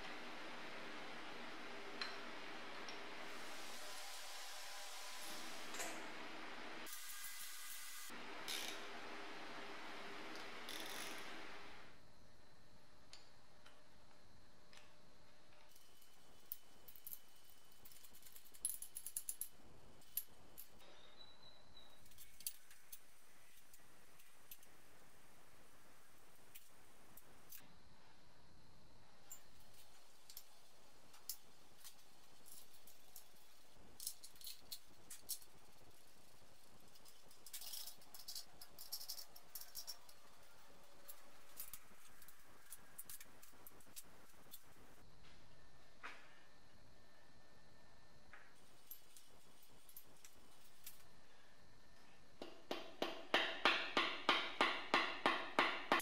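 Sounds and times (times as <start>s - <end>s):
metal parts clicking and clinking: 15.6s - 20.8s, 21.8s - 24.8s, 29.2s - 45.0s, 48.6s - 51.1s.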